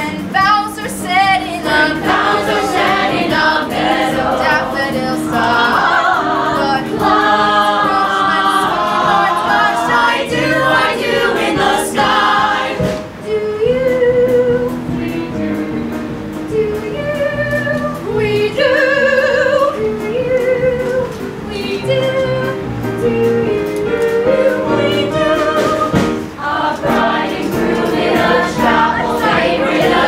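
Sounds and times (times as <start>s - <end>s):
cast singing in chorus: 1.4s - 13.4s, 23.8s - 30.0s.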